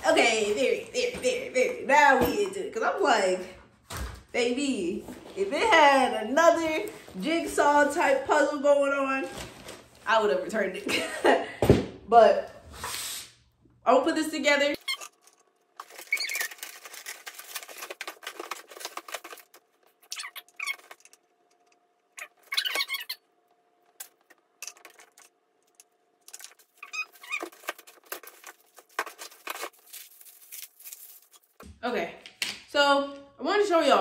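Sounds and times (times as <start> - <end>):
plastic packaging crinkling: 14.8 - 21.6, 24.0 - 31.6.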